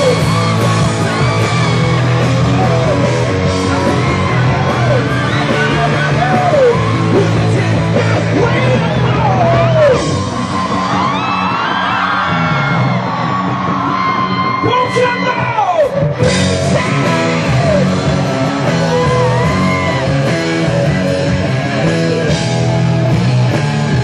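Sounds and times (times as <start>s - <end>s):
person singing: 0.0s - 10.1s
drums: 0.0s - 24.0s
electric guitars: 0.0s - 24.0s.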